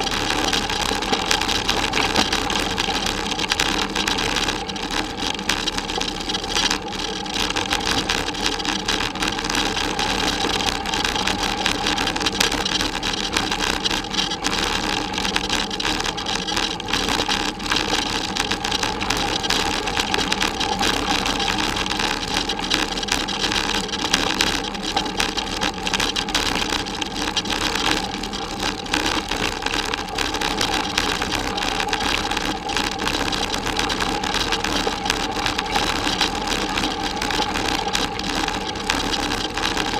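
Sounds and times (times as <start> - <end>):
bicycle tyres on gravel track: 0.0 - 39.9
camera rattling: 0.1 - 3.2.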